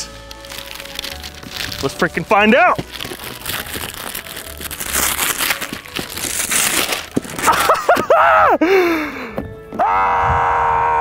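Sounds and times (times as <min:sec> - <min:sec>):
wrapping paper ripping and crumpling: 0:00.0 - 0:08.0.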